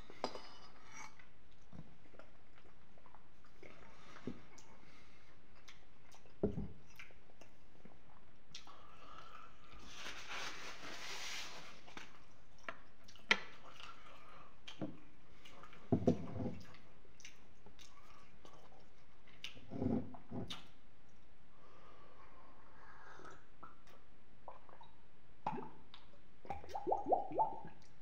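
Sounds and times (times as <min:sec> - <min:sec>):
chewing: 0:05.5 - 0:09.5, 0:16.6 - 0:19.6.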